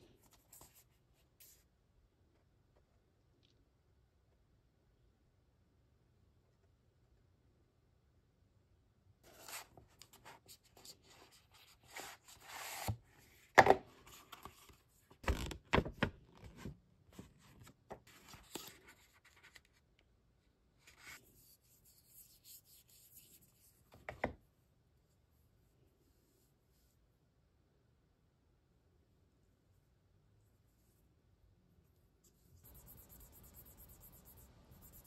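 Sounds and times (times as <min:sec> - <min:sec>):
stylus scratching on tablet screen: 0:32.6 - 0:35.0.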